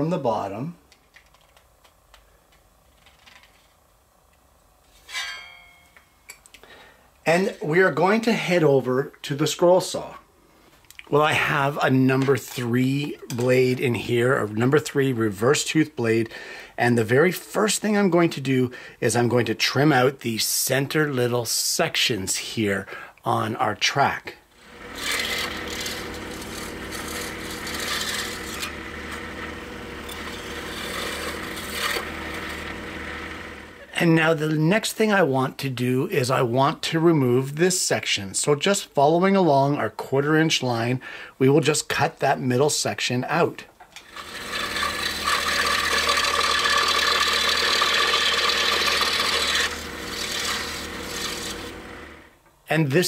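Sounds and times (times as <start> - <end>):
saw motor humming: 24.5 - 33.9, 44.0 - 52.3
scroll saw cutting wood: 24.5 - 33.9, 44.0 - 52.3.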